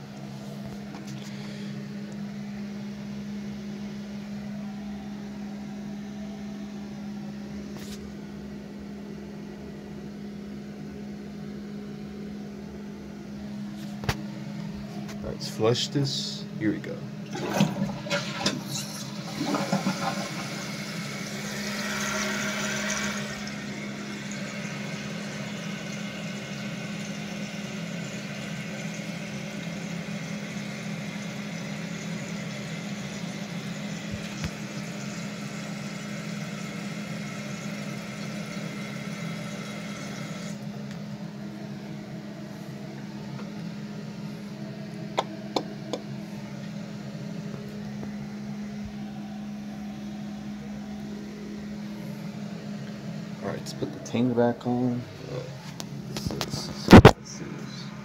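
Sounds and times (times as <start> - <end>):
steady low hum: 0.0 - 58.0
toilet tank refilling hiss: 17.3 - 40.6.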